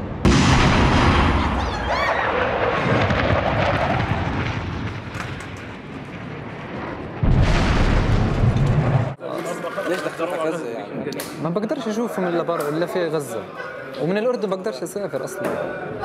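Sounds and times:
booming blasts: 0:00.0 - 0:09.2.

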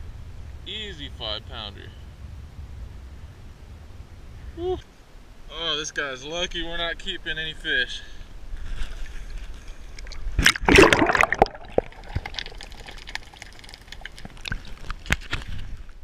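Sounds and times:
sharp underwater clicks: 0:09.9 - 0:15.6
loud splash into water: 0:10.4 - 0:13.0.

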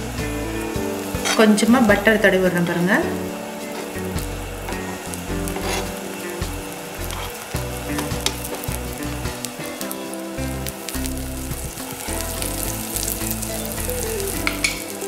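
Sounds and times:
egg sizzling in a pan: 0:00.0 - 0:15.0
knife tapping and scraping pan: 0:04.7 - 0:06.0.

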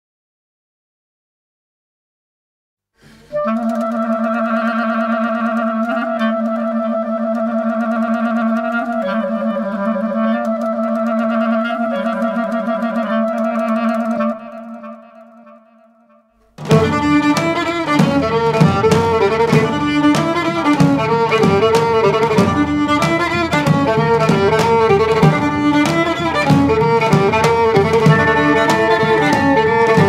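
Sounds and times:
clarinet long low notes: 0:03.3 - 0:16.1, 0:25.4 - 0:30.0.

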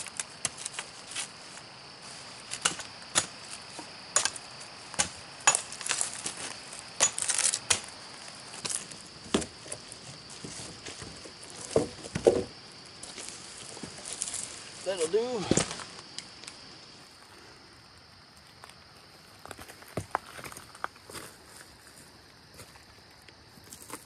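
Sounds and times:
hatchet chopping branches: 0:02.5 - 0:03.4, 0:04.1 - 0:06.4, 0:07.0 - 0:07.9.

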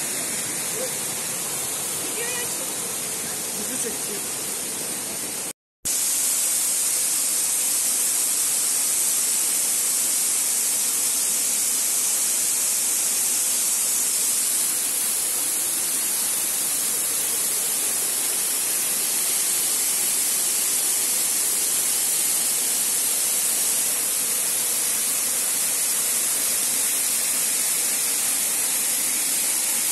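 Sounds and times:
waterfall rushing: 0:00.0 - 0:05.5, 0:14.6 - 0:29.9.

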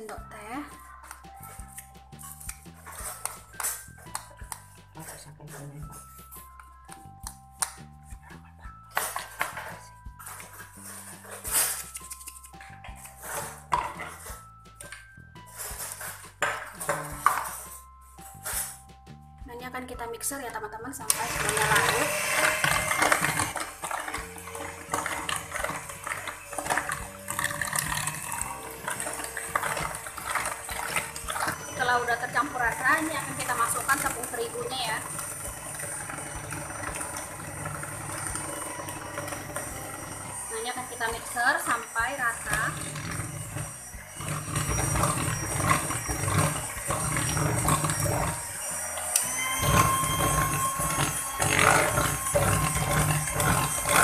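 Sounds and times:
electric hand mixer whisking batter: 0:00.0 - 0:18.9, 0:21.0 - 0:54.0.

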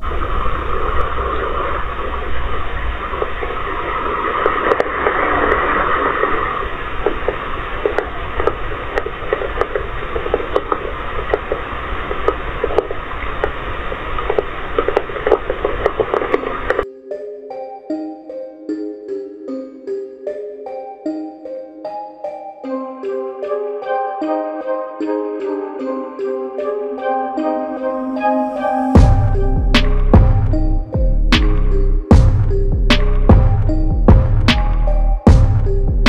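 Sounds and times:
rain falling: 0:00.0 - 0:16.8.

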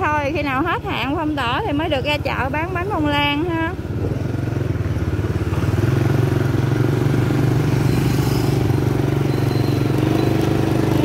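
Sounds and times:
small motorbike engine running: 0:03.9 - 0:11.0.

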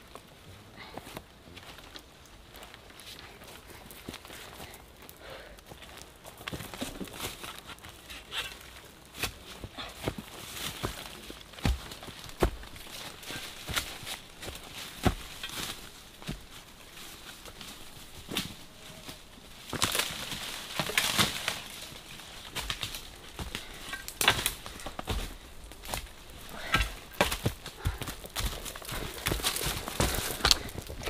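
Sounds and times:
brushing through undergrowth: 0:06.2 - 0:31.0
footsteps crunching on dry leaves: 0:09.3 - 0:31.0.

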